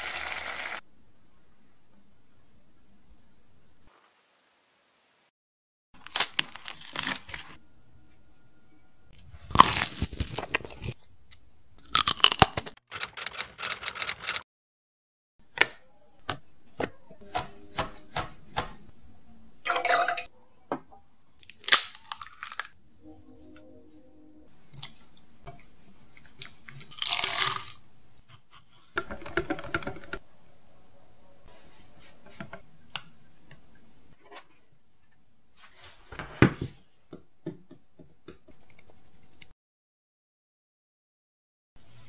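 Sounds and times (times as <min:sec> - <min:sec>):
food crunching and crackling: 0:06.0 - 0:07.5, 0:09.4 - 0:12.8, 0:21.4 - 0:22.8, 0:26.1 - 0:27.9.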